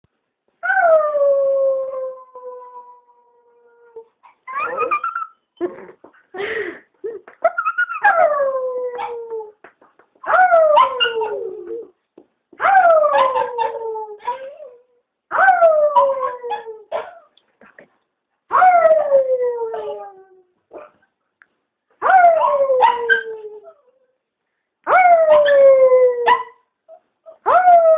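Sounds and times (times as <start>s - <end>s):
dog yipping and crying: 4.2s - 5.4s, 10.3s - 11.8s, 12.6s - 14.7s, 15.3s - 17.3s, 22.0s - 23.4s.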